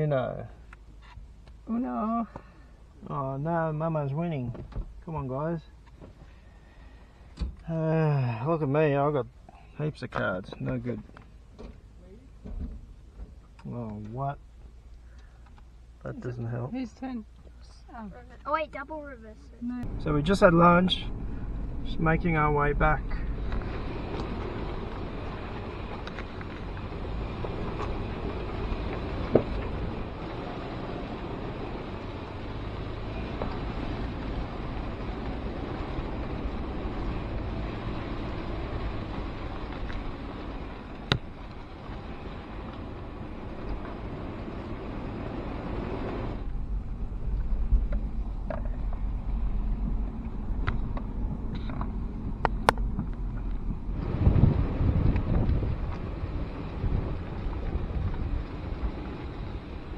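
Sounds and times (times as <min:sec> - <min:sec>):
vehicle engine and tyre noise: 0:00.0 - 0:59.9
deep rumble: 0:19.0 - 0:59.9.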